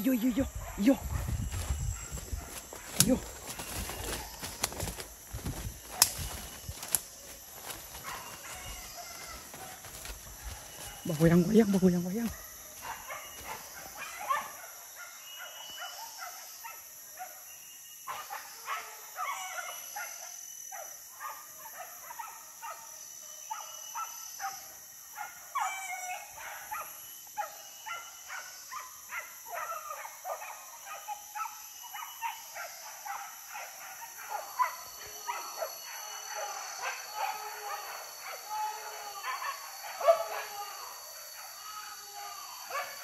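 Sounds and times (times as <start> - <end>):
dogs barking: 0.2 - 17.4, 18.1 - 41.6, 42.5 - 43.0.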